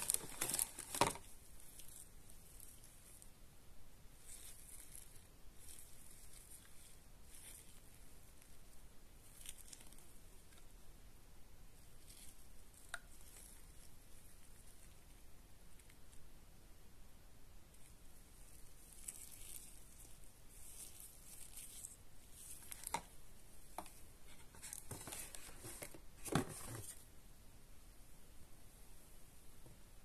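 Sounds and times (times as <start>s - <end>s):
cardboard packaging rustling: 0.0s - 3.0s, 18.5s - 27.0s.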